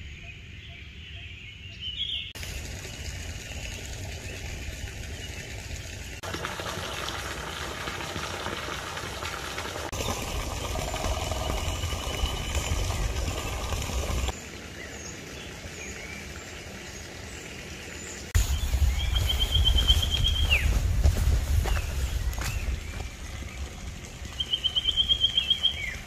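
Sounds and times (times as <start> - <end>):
birds trilling: 10.0 - 14.4, 18.4 - 23.7.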